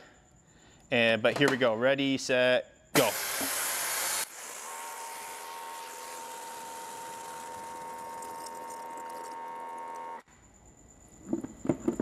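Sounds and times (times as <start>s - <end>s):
water spray hiss: 3.0s - 7.5s
pressure washer humming: 3.0s - 10.2s.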